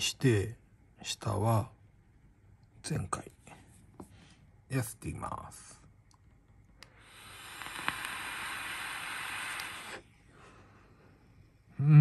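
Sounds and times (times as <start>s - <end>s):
vape click: 6.8s - 10.0s
airy hiss of vape draw: 6.9s - 10.1s.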